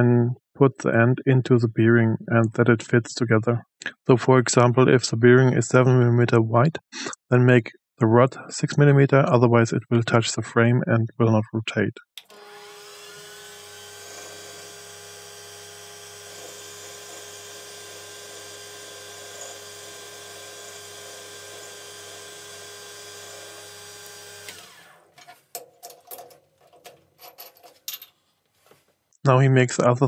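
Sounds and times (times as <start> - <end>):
lathe motor whine: 12.2 - 25.1
metallic clicks and knocks: 25.2 - 28.2.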